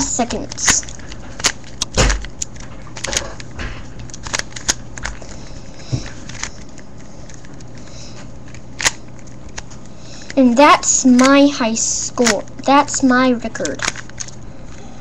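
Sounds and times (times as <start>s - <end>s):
low steady hum: 0.0s - 15.0s
plastic cube clicking and knocking: 13.6s - 14.4s.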